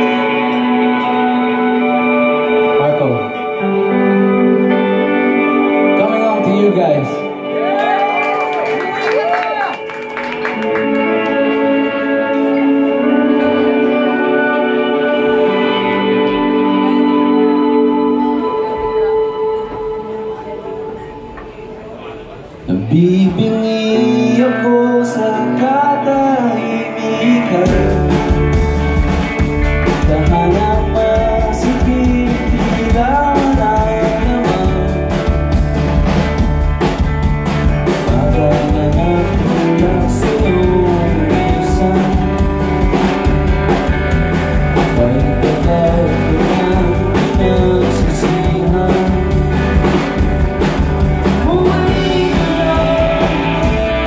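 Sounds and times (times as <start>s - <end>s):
bass guitar: 0.0s - 21.4s, 22.7s - 54.0s
electric guitars: 0.0s - 54.0s
man singing lead vocal: 22.7s - 28.7s, 29.9s - 35.5s, 38.0s - 42.9s, 44.8s - 49.9s, 51.1s - 54.0s
drum kit: 27.6s - 54.0s.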